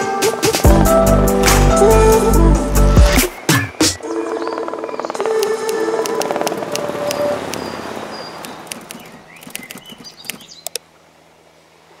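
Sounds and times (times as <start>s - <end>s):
music: 0.0s - 7.2s
birds chirping and whistling: 3.0s - 10.8s.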